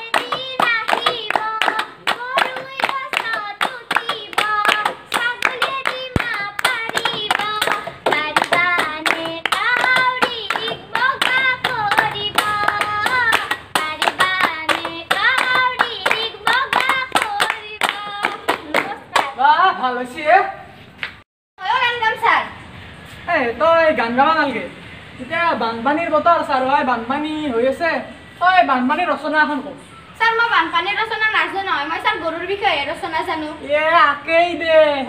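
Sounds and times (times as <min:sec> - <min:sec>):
girl singing: 0:00.0 - 0:19.4
hand claps: 0:00.0 - 0:19.4.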